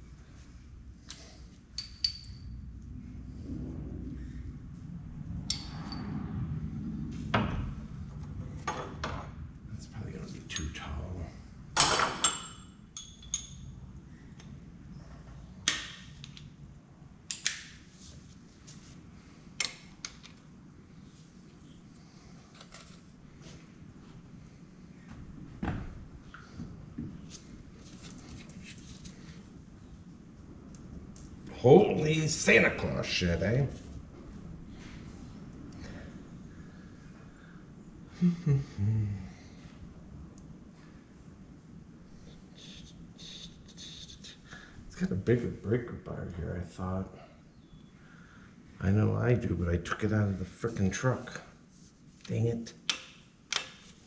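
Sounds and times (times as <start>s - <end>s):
low steady rumble: 0.0s - 52.2s
low steady hum: 0.0s - 54.0s
wrench clinking on metal: 11.9s - 13.7s.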